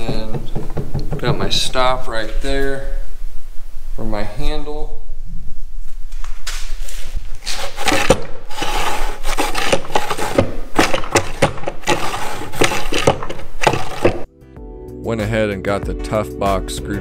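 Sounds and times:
plywood scraping and knocking: 0.0 - 2.2, 7.4 - 14.3.

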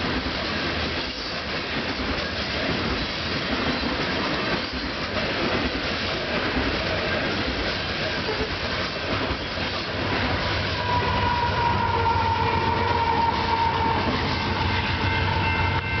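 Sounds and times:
train wheels clattering: 0.0 - 10.8
diesel locomotive engine rumbling: 0.0 - 16.0
locomotive whine: 9.4 - 16.0.

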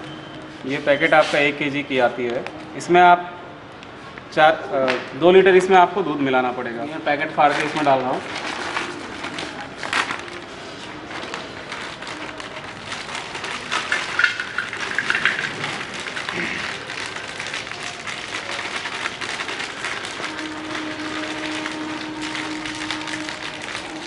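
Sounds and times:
plastic pouch crinkling: 7.3 - 24.0.

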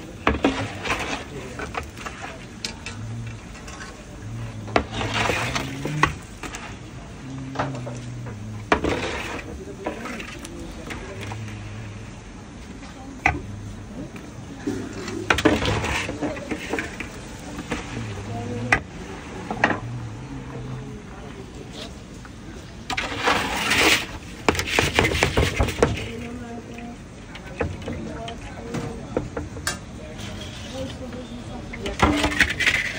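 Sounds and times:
metal utensils scraping a pan: 0.2 - 6.9, 7.5 - 12.0, 14.6 - 18.7, 22.9 - 26.4, 30.1 - 32.9.

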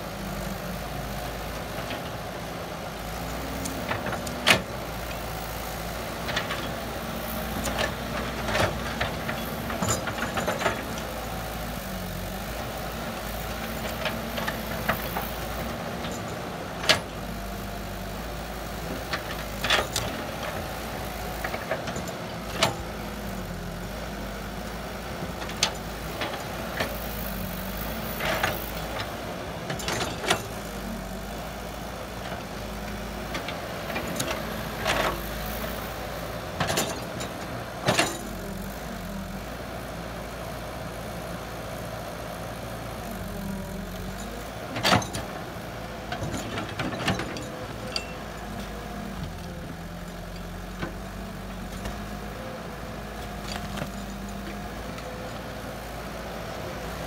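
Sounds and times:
excavator diesel engine running: 0.0 - 57.0
metallic clanks from excavator bucket: 36.6 - 38.4, 46.1 - 48.8.

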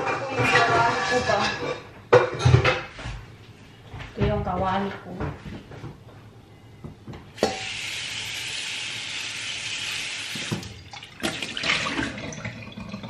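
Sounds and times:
water running into frying pan: 7.4 - 13.0.

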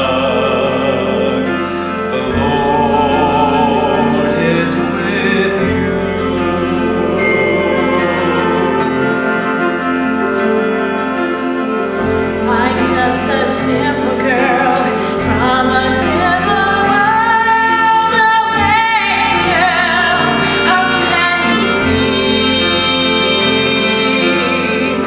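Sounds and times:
instrumental accompaniment: 0.1 - 25.0
woman singing: 12.5 - 25.0.

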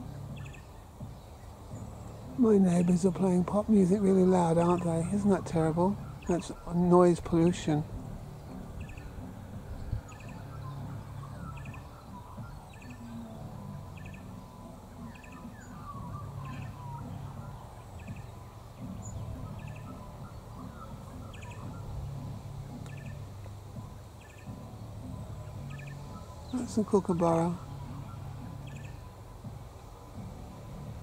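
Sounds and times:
faint bird chirps: 8.2 - 23.2, 23.8 - 29.2.

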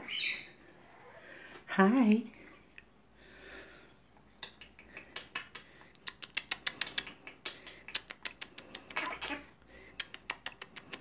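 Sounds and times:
parrot making sharp clicks: 4.4 - 9.4, 10.0 - 11.0.

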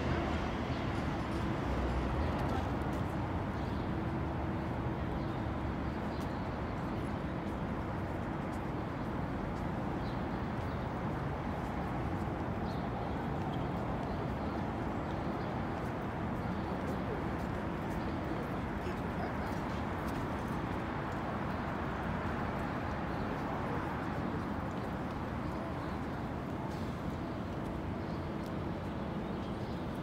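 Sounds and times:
distant traffic: 10.9 - 30.0.

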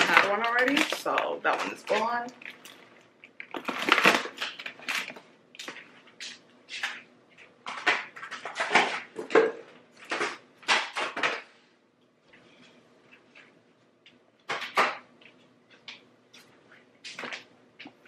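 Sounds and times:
plastic bags crinkling: 0.0 - 6.2.

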